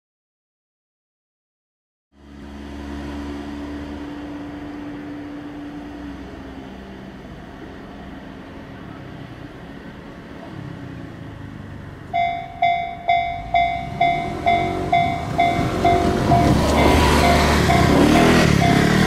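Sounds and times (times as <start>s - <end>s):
train rumble: 7.1s - 19.0s
level-crossing alarm bell dinging: 12.1s - 19.0s.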